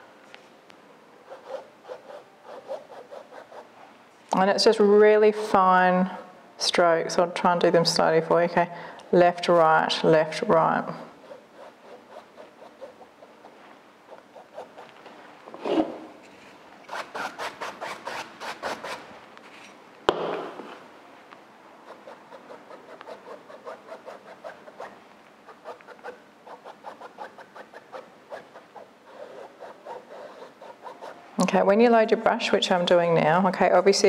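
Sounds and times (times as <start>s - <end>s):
paintbrush stroking canvas: 1.2s - 3.8s, 10.6s - 15.0s, 21.8s - 31.4s
sharp knock: 20.1s - 20.7s.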